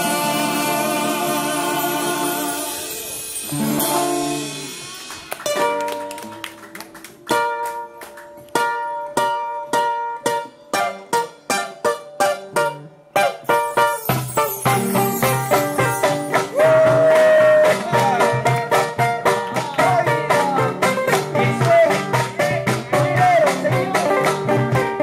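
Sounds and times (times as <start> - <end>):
acoustic guitar strumming: 0.0 - 6.4, 7.3 - 25.0.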